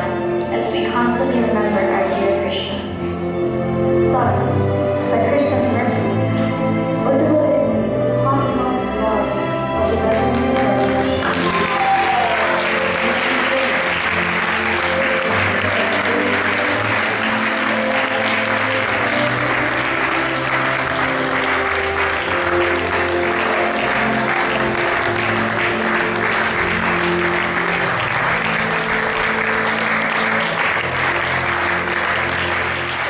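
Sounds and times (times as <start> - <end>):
music with long held notes: 0.0 - 33.0
audience applauding: 9.8 - 33.0.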